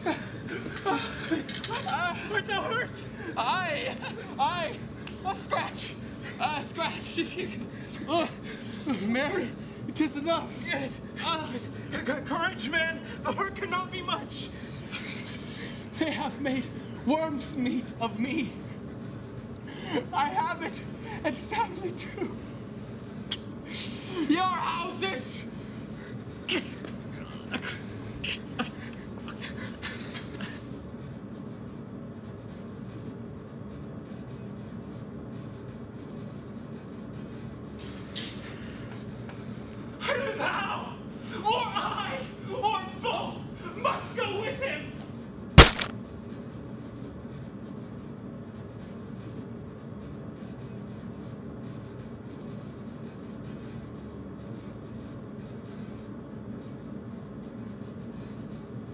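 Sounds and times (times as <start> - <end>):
low hum and hiss: 0.0 - 34.7.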